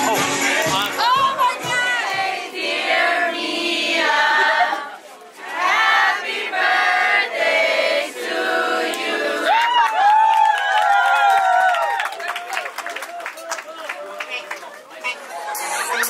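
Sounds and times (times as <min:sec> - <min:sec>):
group of people singing: 0:01.0 - 0:09.5.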